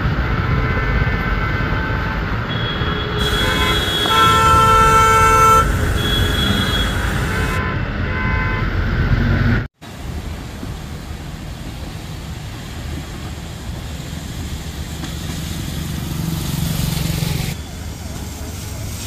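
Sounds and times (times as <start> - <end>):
rain and tyres on wet road: 0.0 - 7.6, 8.8 - 19.0
car horn: 0.0 - 9.0
traffic: 0.0 - 19.0.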